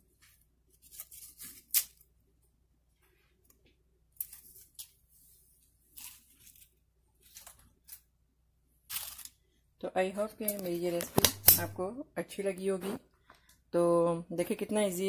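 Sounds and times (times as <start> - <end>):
potato chips crunching: 5.9 - 8.0, 8.9 - 9.4.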